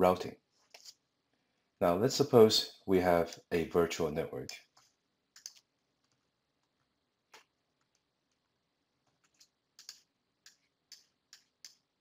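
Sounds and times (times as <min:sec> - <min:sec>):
faint sharp clicks and taps: 0:04.4 - 0:11.9.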